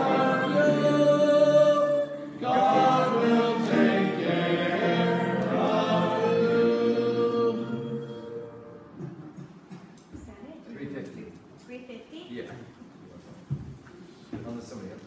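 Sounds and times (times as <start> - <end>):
congregation singing a hymn: 0.0 - 9.4.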